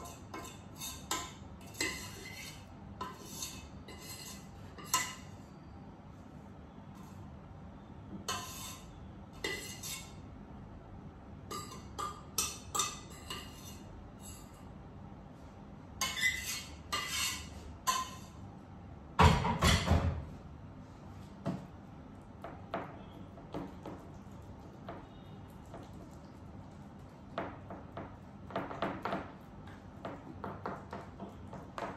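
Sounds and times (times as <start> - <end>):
utensil clinking and scraping in pot: 0.0 - 5.4, 8.2 - 10.2, 11.5 - 14.7, 16.0 - 18.4.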